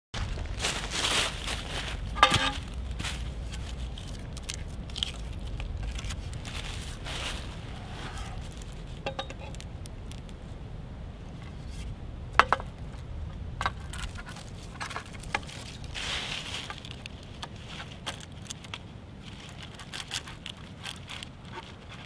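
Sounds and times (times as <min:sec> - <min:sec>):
low rumble: 0:00.2 - 0:17.8
rattling scrape: 0:01.8 - 0:05.2
handling clicks and knocks: 0:02.1 - 0:02.7, 0:09.0 - 0:10.3, 0:12.4 - 0:13.0.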